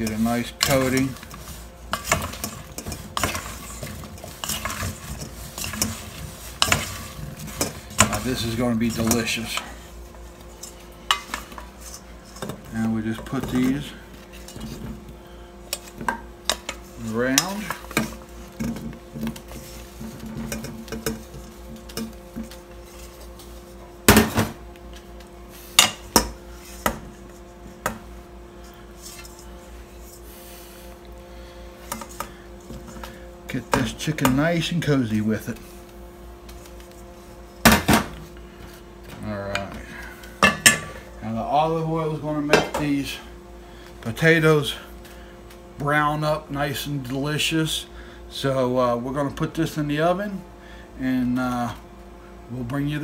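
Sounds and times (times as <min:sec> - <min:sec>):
faint steady hum: 0:00.0 - 0:53.0.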